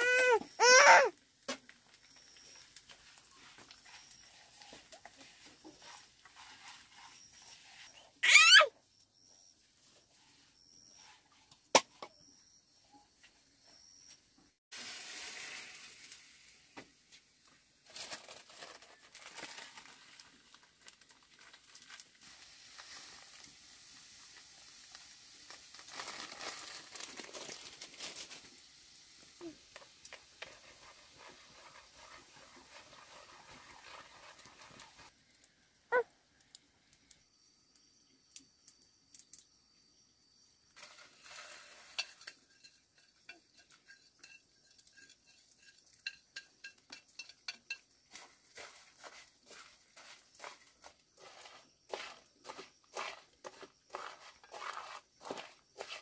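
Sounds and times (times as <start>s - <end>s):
frying pan sizzling: 14.7s - 16.9s, 22.0s - 35.1s, 40.8s - 49.7s
plastic packet crinkling: 25.7s - 28.4s.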